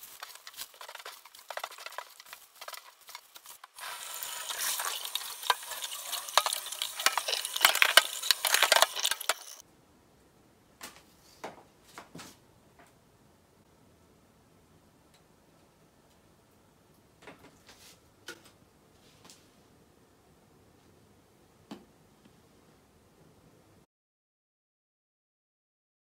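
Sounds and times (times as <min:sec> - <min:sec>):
tap water running into bowl: 0:03.8 - 0:09.6.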